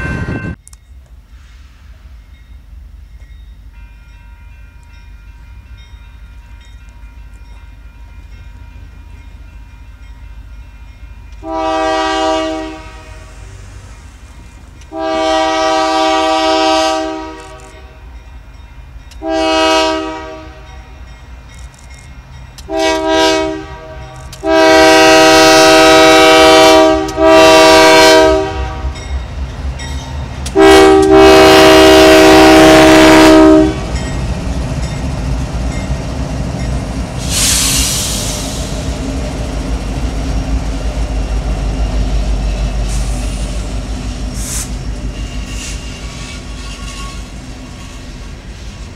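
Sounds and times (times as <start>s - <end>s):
locomotive air horn blasts: 0.0s - 0.6s, 11.4s - 13.5s, 14.9s - 18.0s, 19.2s - 20.8s, 22.7s - 29.1s, 30.5s - 34.0s, 44.4s - 48.1s
brief air hiss: 1.2s - 2.2s, 37.2s - 38.9s, 42.9s - 43.6s, 44.3s - 44.9s
locomotives rumbling past: 11.4s - 48.9s.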